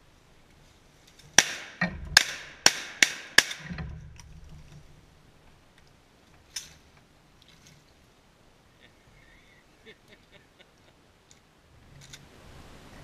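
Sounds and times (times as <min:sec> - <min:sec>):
shotgun blasts: 0:01.4 - 0:03.8.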